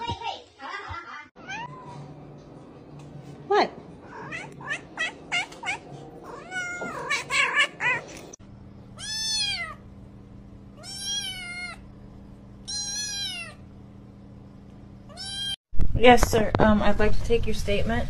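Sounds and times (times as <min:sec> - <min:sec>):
cats meowing: 0:01.4 - 0:02.1, 0:04.0 - 0:08.4, 0:09.0 - 0:09.8, 0:10.8 - 0:11.8, 0:12.7 - 0:13.6
faint steady hum: 0:01.4 - 0:17.8
kitten meowing high: 0:09.0 - 0:09.8, 0:10.8 - 0:11.8, 0:12.7 - 0:13.6.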